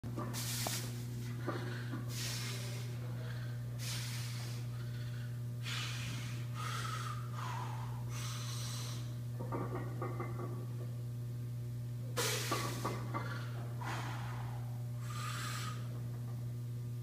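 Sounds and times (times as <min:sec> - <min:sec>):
steady low hum: 0:00.1 - 0:17.0
strained voiced breath: 0:01.4 - 0:09.1
man taking sharp forceful breaths: 0:01.5 - 0:09.2, 0:12.2 - 0:16.0.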